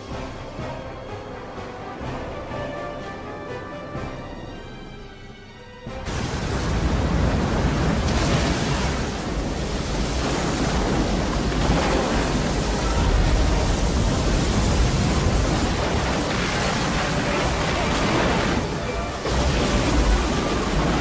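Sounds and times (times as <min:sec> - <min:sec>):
rush of surging water: 0:06.0 - 0:21.0.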